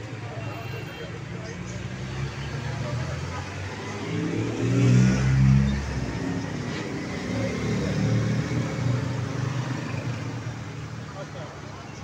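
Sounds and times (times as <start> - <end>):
vehicle engine revving: 1.8 - 10.6.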